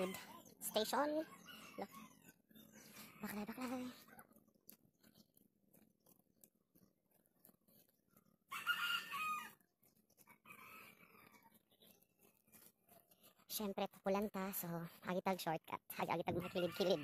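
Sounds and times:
rooster crowing: 8.5 - 9.6, 16.5 - 17.0.

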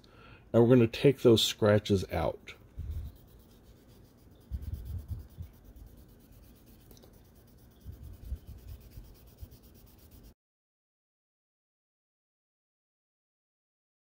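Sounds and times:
sandpaper rubbing on plastic: 2.8 - 10.4.

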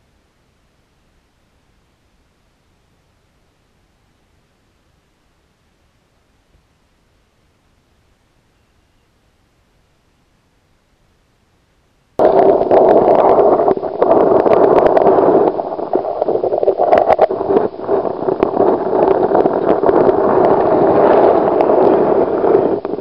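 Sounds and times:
underwater stream gurgling: 12.2 - 23.0.

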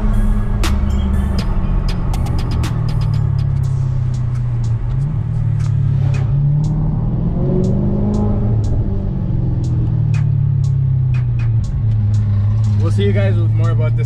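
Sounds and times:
car engine accelerating: 0.0 - 14.0
light ticks: 3.1 - 6.8, 9.6 - 14.0.

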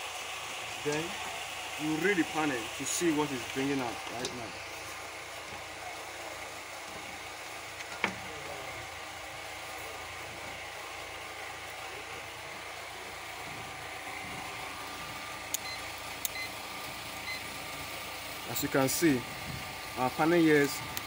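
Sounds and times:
low background hum: 0.0 - 21.0
multimeter beeps: 15.5 - 16.6, 17.2 - 17.5.

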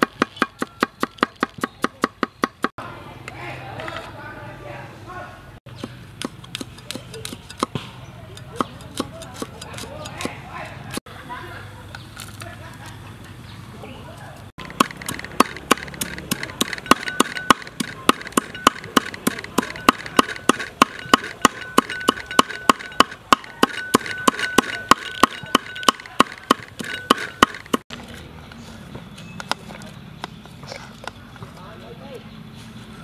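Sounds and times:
cleaver chopping on wooden block: 0.0 - 2.7, 5.7 - 10.4, 14.6 - 27.8.

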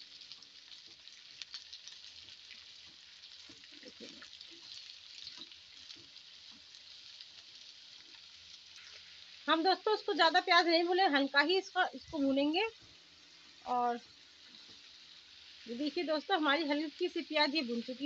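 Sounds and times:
onions sizzling in oil: 0.0 - 18.0
wooden spatula stirring: 14.3 - 15.3.

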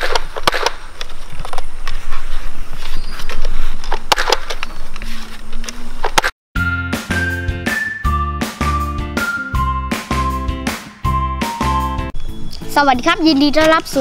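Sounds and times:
noisy rustling: 0.0 - 6.3.

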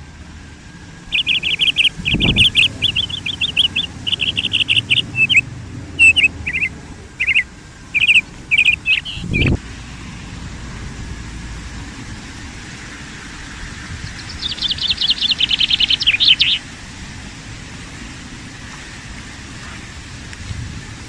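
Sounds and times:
steady low rumble: 0.0 - 21.0
songbird trilling: 1.0 - 9.6, 14.0 - 16.6.

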